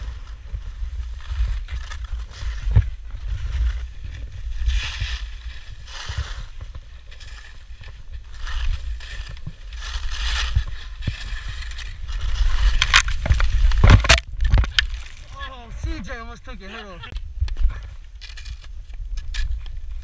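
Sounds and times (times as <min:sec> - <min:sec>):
skis hissing through snow: 0:00.0 - 0:12.8.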